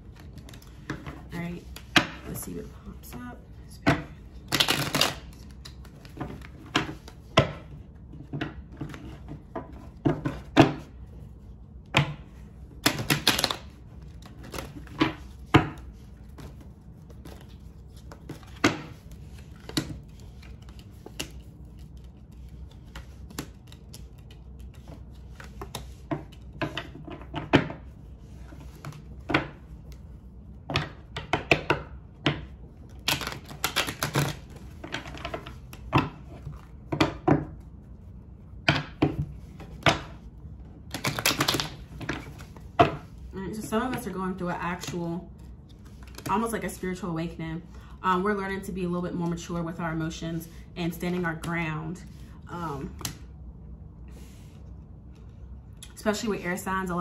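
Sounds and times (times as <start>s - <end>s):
cards being shuffled: 0.0s - 3.2s, 4.2s - 7.7s, 12.6s - 30.2s, 32.8s - 37.2s, 39.2s - 44.1s, 44.8s - 46.6s.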